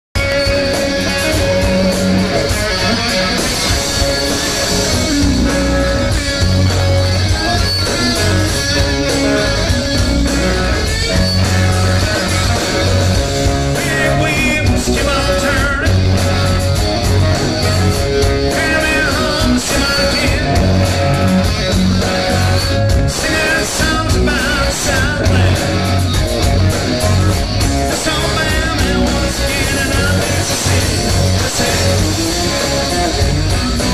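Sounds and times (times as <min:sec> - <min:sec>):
bass guitar: 0:00.1 - 0:33.9
electric guitars: 0:00.2 - 0:33.9
live rock band playing: 0:00.2 - 0:33.9
man singing into microphone: 0:13.7 - 0:16.0, 0:18.5 - 0:20.8, 0:23.1 - 0:25.8, 0:27.9 - 0:32.2.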